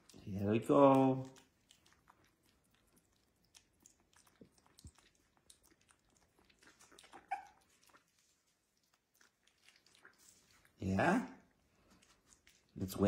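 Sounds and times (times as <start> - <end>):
puppy suckling wet clicks: 0.0 - 10.8, 11.4 - 12.9
puppy whimpering: 6.6 - 8.3.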